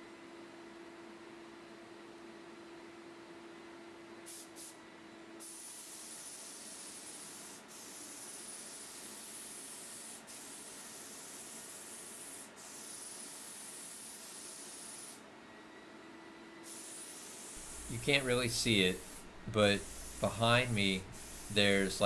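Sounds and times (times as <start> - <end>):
paint spray gun hissing: 4.3 - 4.8, 5.4 - 15.2, 16.6 - 22.0.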